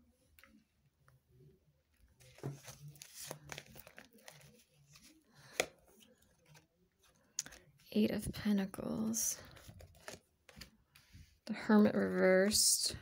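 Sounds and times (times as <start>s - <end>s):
cards rustling and sliding: 2.2s - 7.8s, 9.4s - 11.2s.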